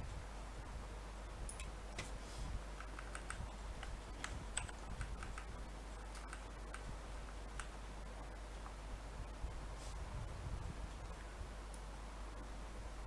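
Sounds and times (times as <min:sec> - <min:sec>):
keyboard typing clicks: 0:02.8 - 0:06.9.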